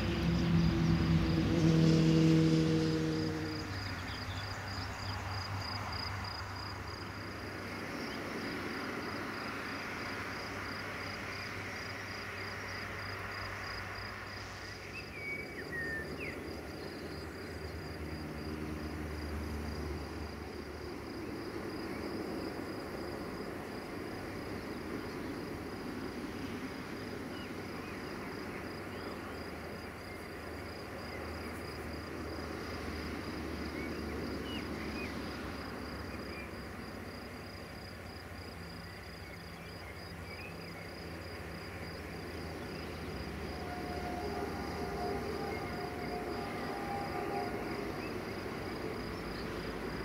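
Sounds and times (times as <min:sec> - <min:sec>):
cricket chirping: 0:00.0 - 0:50.0
low hum: 0:42.2 - 0:50.0.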